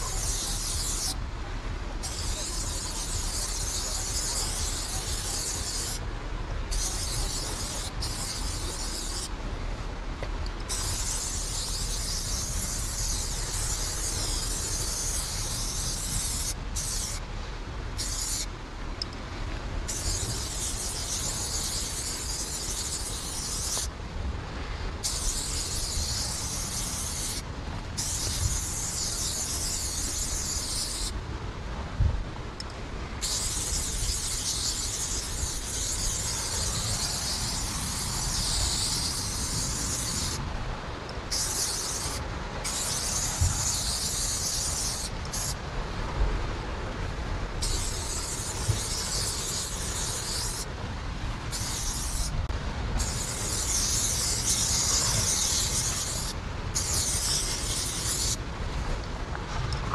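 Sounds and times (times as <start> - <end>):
spray paint can hissing: 0.0 - 1.2, 2.0 - 6.0, 6.7 - 9.3, 10.7 - 17.2, 18.0 - 18.5, 19.9 - 23.9, 25.0 - 27.4, 28.0 - 31.1, 33.2 - 40.4, 41.3 - 45.6, 47.6 - 50.7, 51.5 - 52.3, 53.0 - 58.4.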